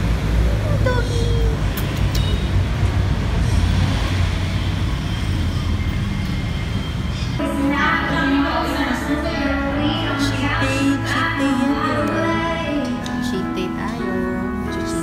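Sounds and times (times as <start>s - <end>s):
street traffic rumble: 0.0s - 15.0s
music with singing: 7.4s - 15.0s.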